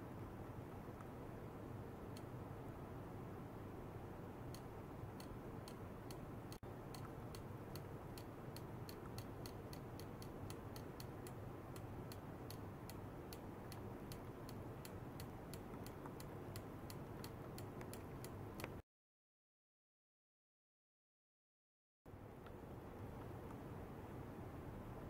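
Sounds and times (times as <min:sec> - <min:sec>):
steady low hum: 0:00.0 - 0:18.8.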